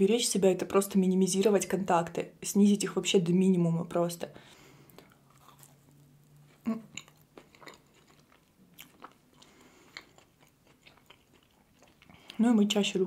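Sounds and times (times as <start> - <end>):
soft wet chewing: 4.7 - 12.8.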